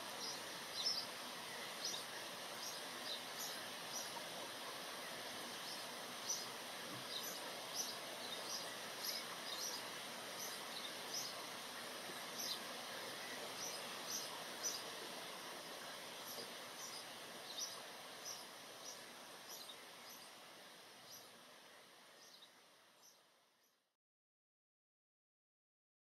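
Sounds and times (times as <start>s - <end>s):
rain falling on foliage: 0.0s - 23.2s.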